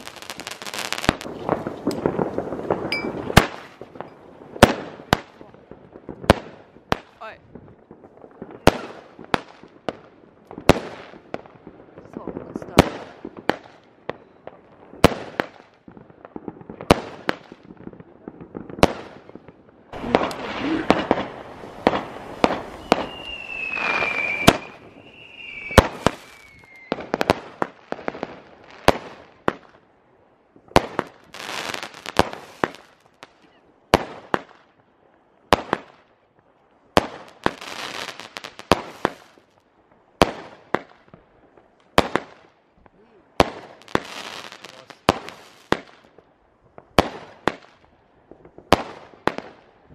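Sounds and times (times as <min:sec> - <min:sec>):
fireworks bangs: 0:00.0 - 0:29.8, 0:30.6 - 0:34.8, 0:35.5 - 0:36.1, 0:36.9 - 0:39.6, 0:40.2 - 0:49.9
fireworks hissing and crackling: 0:00.0 - 0:29.8, 0:30.5 - 0:49.9
falling whistles: 0:22.7 - 0:27.0.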